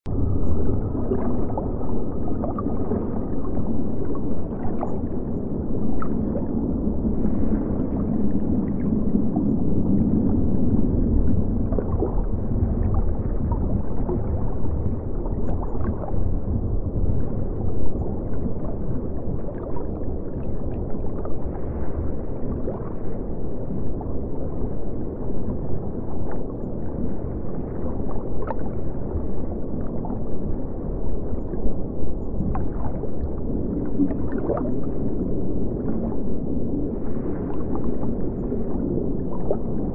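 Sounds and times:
aquarium air bubbles gurgling: 0.1s - 20.4s.

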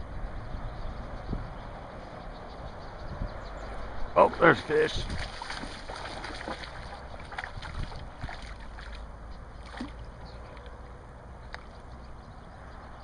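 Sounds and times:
wind rumble on microphone: 0.0s - 13.0s
fish splashing in water: 4.4s - 10.7s.

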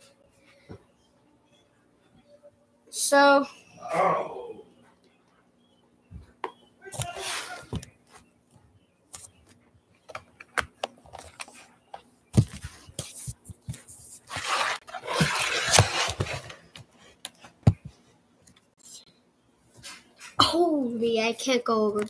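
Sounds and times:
scraping: 14.2s - 16.6s.

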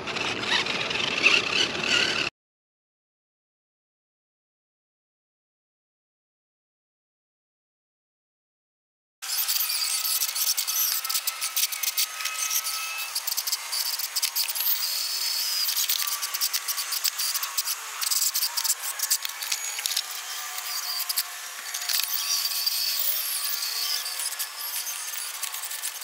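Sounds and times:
electric motor whine: 9.2s - 26.0s.

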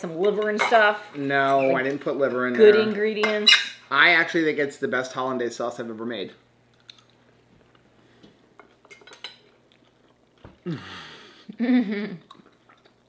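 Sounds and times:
breathy exhale: 10.6s - 11.5s.

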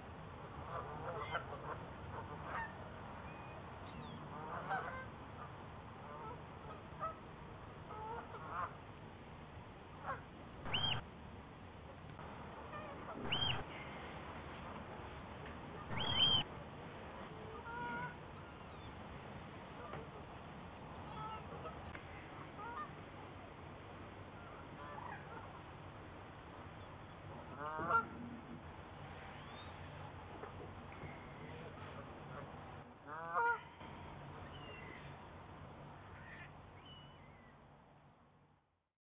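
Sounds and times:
geese honking: 0.7s - 2.8s, 4.3s - 5.1s, 7.9s - 8.8s, 10.0s - 11.0s, 12.6s - 13.7s, 15.9s - 16.4s, 17.5s - 18.2s, 21.1s - 21.8s, 22.6s - 22.9s, 27.5s - 28.2s, 32.3s - 33.7s
waterfowl calling: 0.7s - 2.8s, 4.3s - 7.2s, 7.9s - 8.8s, 10.0s - 11.0s, 12.6s - 13.8s, 15.8s - 16.5s, 17.5s - 18.2s, 21.1s - 23.0s, 24.4s - 25.6s, 27.5s - 28.2s, 31.0s - 33.8s, 36.0s - 37.5s.

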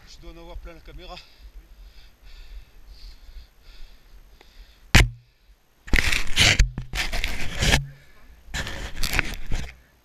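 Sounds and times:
sharp knock: 5.0s - 5.2s
scraping against camera housing: 5.9s - 7.9s, 8.6s - 9.8s.

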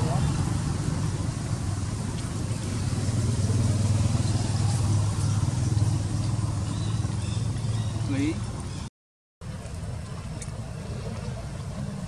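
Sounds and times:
vehicle engine hum: 0.0s - 12.0s.

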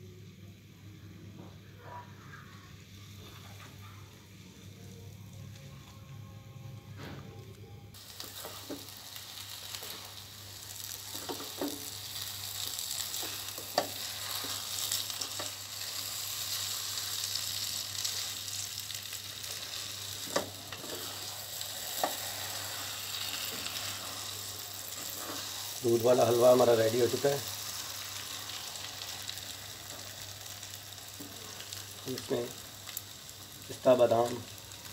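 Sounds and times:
food sizzling in a wok: 8.0s - 34.9s.

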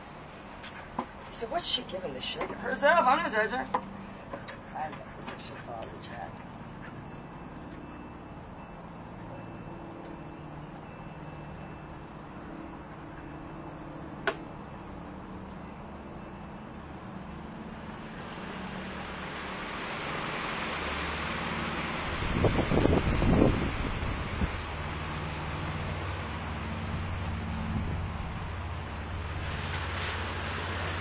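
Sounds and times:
wind through trees: 6.4s - 31.0s.

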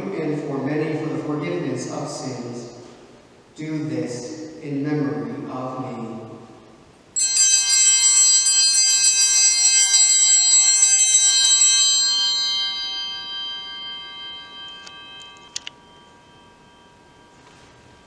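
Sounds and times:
altar bells ringing: 7.2s - 18.0s.

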